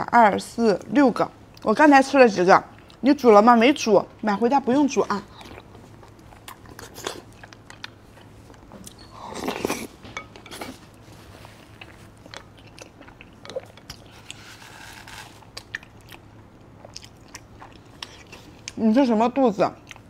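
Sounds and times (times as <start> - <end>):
wet chewing: 5.0 - 18.8.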